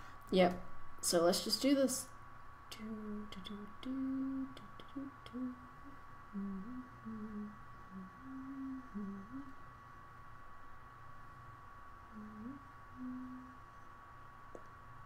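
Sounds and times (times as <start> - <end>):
person humming: 2.7 - 9.6, 12.1 - 13.8
high-pitched electronic whine: 2.7 - 14.1.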